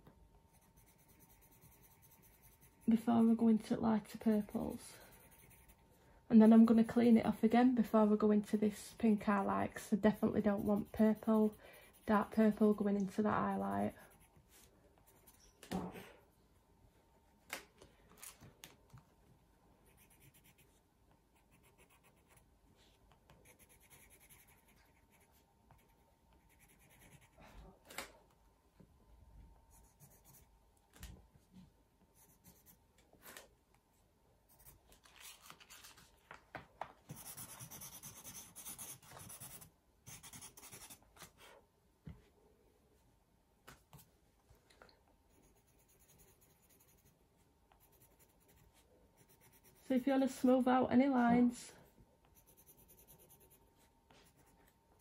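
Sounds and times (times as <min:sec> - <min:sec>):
brisk pencil rubbing strokes: 0:00.5 - 0:03.4
coloured pencils scratching paper: 0:00.5 - 0:05.8, 0:06.4 - 0:15.5, 0:19.8 - 0:20.8, 0:21.4 - 0:22.5, 0:23.3 - 0:27.5, 0:29.8 - 0:30.5, 0:37.1 - 0:41.4, 0:45.3 - 0:50.6, 0:52.3 - 0:54.8.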